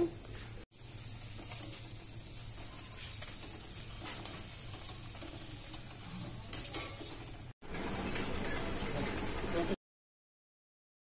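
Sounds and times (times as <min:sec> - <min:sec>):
crickets trilling: 0:00.0 - 0:07.5.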